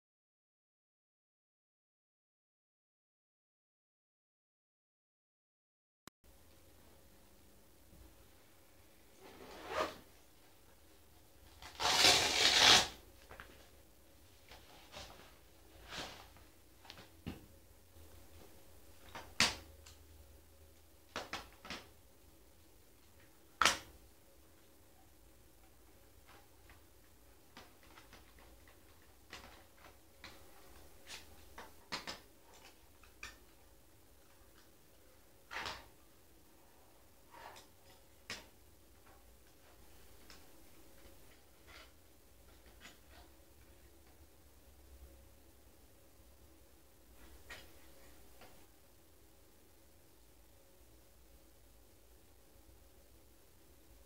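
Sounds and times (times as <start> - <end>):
loud rasp of bag opening: 11.6 - 13.0.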